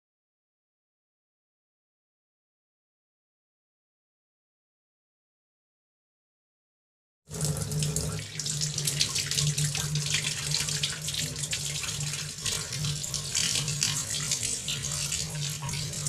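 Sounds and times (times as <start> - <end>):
tap water running into sink: 7.3 - 16.0.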